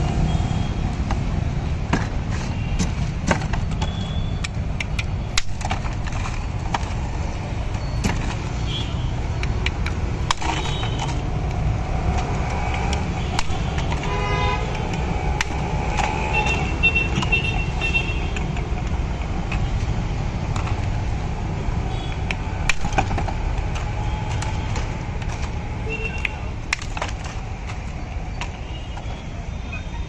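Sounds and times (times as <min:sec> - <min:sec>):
traffic rumble: 0:00.0 - 0:30.0
vehicle horns honking: 0:13.3 - 0:14.8, 0:16.2 - 0:18.4.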